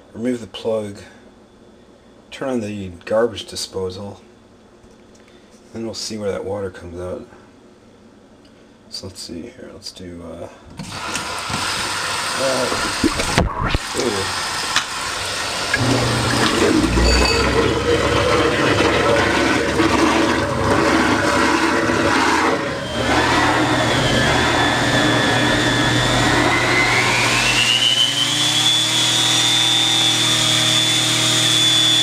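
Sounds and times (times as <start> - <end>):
garbage disposal motor hum: 10.8 - 32.0
tap water running into sink: 11.0 - 22.7.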